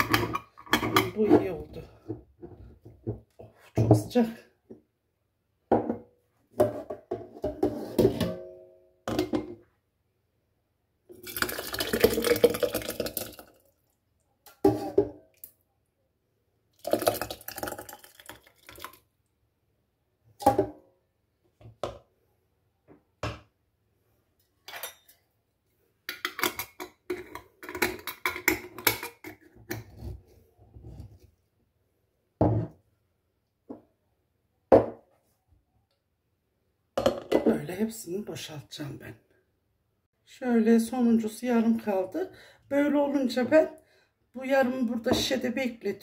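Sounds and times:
liquid pouring: 0:11.2 - 0:14.0, 0:16.8 - 0:19.0.

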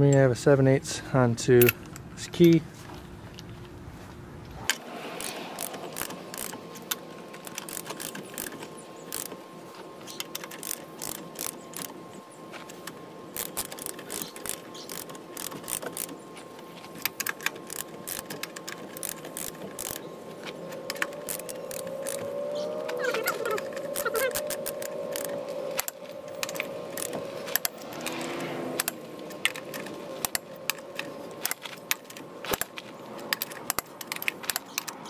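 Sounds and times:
ratchet wrench clicking: 0:05.2 - 0:09.4, 0:10.1 - 0:11.9, 0:13.4 - 0:16.2, 0:17.0 - 0:20.0, 0:20.9 - 0:22.3, 0:23.6 - 0:28.2.

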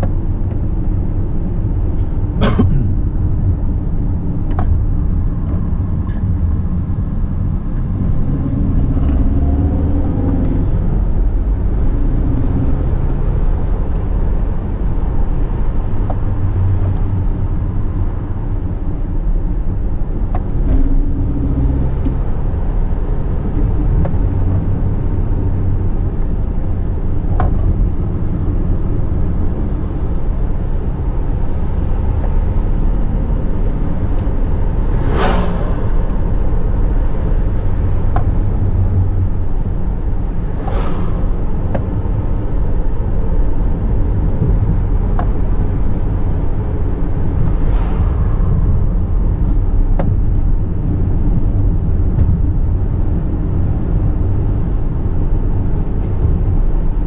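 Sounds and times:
car engine and road rumble: 0:00.0 - 0:57.0
short whooshes: 0:34.8 - 0:36.2, 0:40.5 - 0:41.7, 0:47.3 - 0:49.8.

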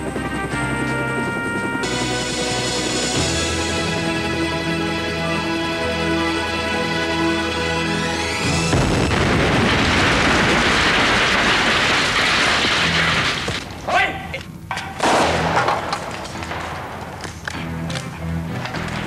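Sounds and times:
theme music: 0:00.0 - 0:09.4
loud explosion blast: 0:08.6 - 0:13.6, 0:15.0 - 0:17.0.

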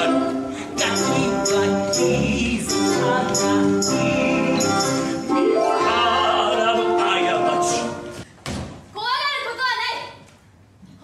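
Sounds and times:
ensemble singing: 0:00.0 - 0:08.2.

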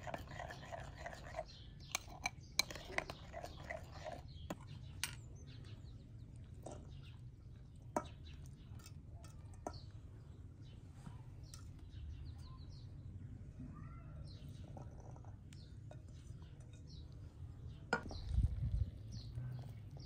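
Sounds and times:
faint bird chirps: 0:08.0 - 0:20.0.

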